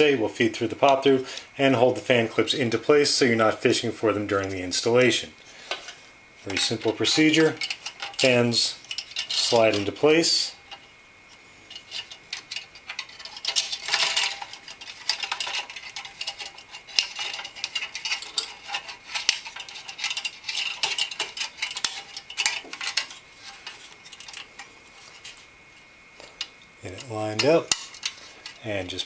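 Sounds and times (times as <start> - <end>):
fan clips clinking against metal: 6.5 - 10.9, 11.7 - 25.4, 26.2 - 29.0.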